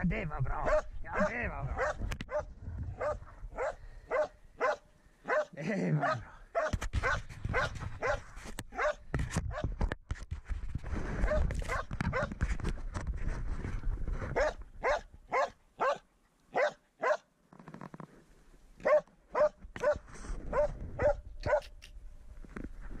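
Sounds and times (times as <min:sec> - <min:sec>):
dog barking: 0:00.6 - 0:09.6, 0:11.2 - 0:12.3, 0:14.4 - 0:17.3, 0:18.8 - 0:21.7
rustling and handling noise: 0:06.6 - 0:14.9.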